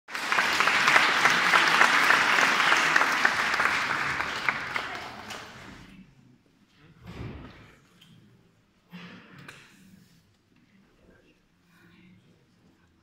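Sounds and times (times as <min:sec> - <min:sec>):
audience applauding: 0:00.1 - 0:05.8.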